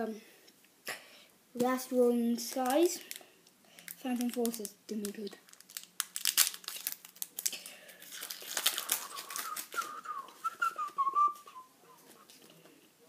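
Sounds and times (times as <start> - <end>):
foil wrapper crinkling and tearing: 2.4 - 10.2
person whistling a tune: 9.1 - 11.7.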